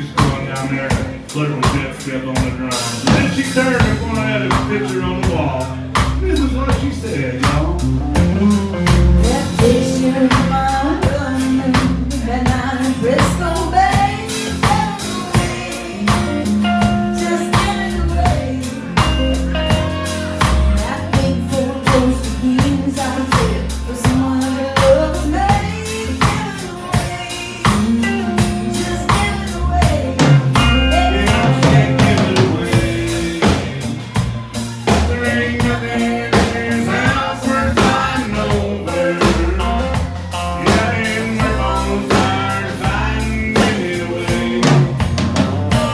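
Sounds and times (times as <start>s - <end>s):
drum kit beat: 0.0s - 45.9s
woman singing: 9.2s - 40.0s, 40.6s - 44.9s, 45.7s - 45.9s.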